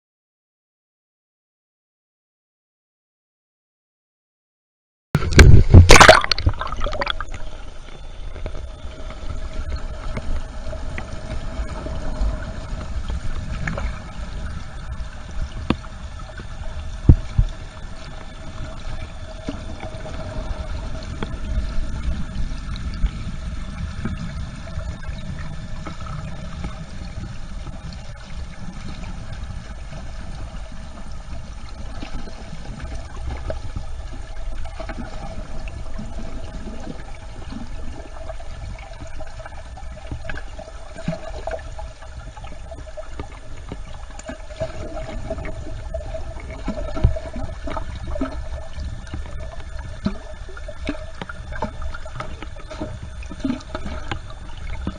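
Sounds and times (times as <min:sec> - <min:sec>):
low rumble: 0:05.2 - 0:40.9
faint steady hum: 0:05.2 - 0:54.9
water rushing underwater: 0:05.2 - 0:54.9.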